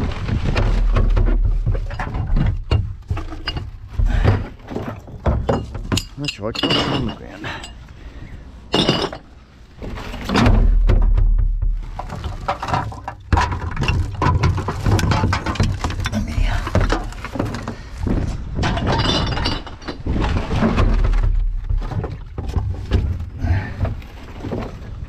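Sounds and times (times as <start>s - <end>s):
rubbish clattering and rustling: 0.0s - 25.0s
glass clinking: 5.4s - 7.8s, 8.7s - 9.2s.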